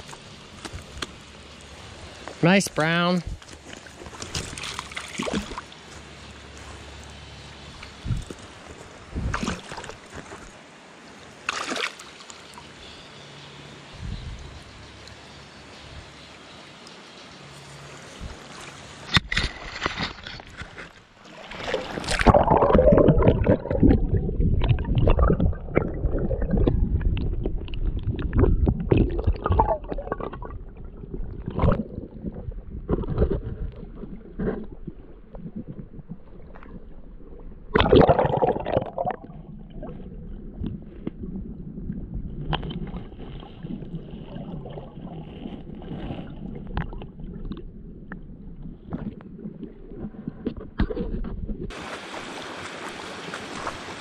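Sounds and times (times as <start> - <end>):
creek water splashing and gurgling: 0.0 - 13.8, 14.4 - 54.0
muffled underwater wash: 21.1 - 54.0.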